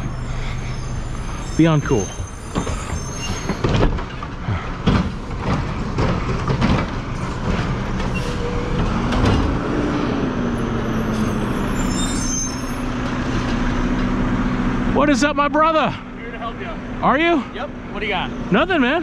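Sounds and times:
garbage truck engine running: 0.0s - 19.0s
metal clanks and knocks: 2.1s - 9.6s.

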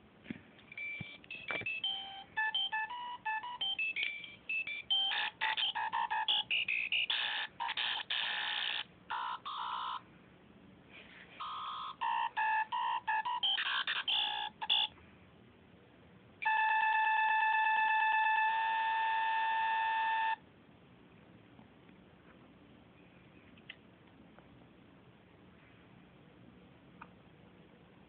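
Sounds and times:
electronic beep-tone melody: 0.7s - 10.0s, 11.4s - 14.9s.

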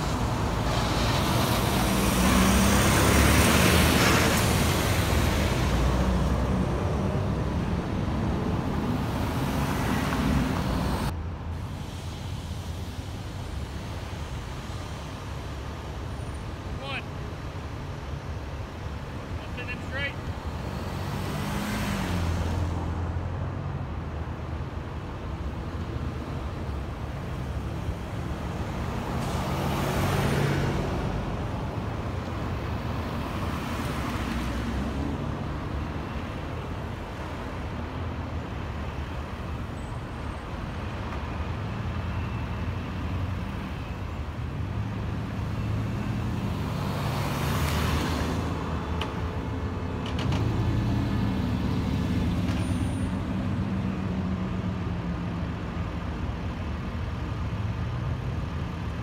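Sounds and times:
truck engines running: 0.0s - 59.0s.

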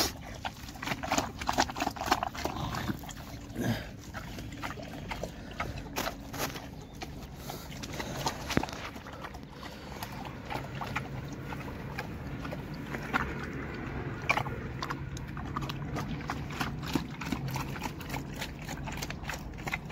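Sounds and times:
pig chomping from metal bowl: 0.0s - 19.9s.

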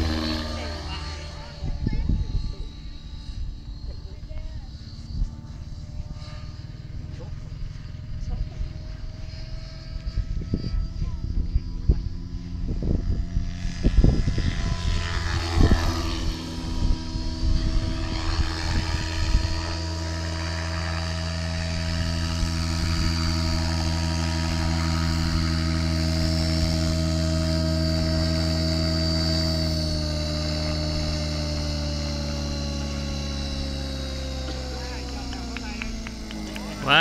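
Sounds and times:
wind buffeting microphone: 0.0s - 20.2s
model helicopter rotor whine: 0.0s - 37.0s.

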